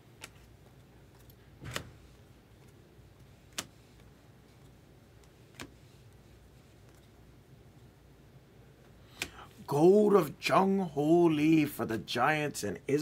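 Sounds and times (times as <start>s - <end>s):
trading cards clicking: 3.4s - 3.8s.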